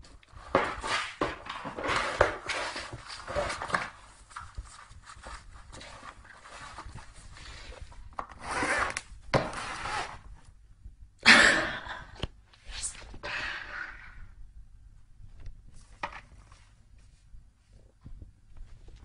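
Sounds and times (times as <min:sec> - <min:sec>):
cardboard box scraping on floor: 0:00.5 - 0:04.0, 0:05.8 - 0:10.2.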